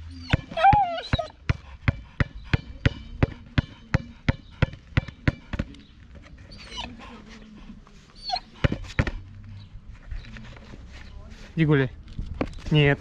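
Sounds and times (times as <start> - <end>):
dog whining: 0.0 - 1.5, 6.5 - 7.1, 8.1 - 8.9
ball bouncing: 0.3 - 5.9, 8.6 - 9.3.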